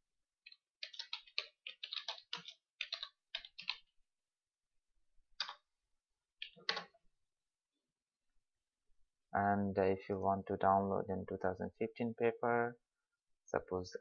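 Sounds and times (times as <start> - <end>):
computer keyboard typing: 0.4 - 3.9, 5.4 - 5.6, 6.4 - 7.0.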